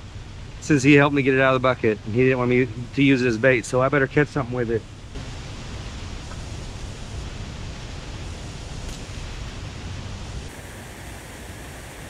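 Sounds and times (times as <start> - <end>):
river rushing: 10.5 - 12.0.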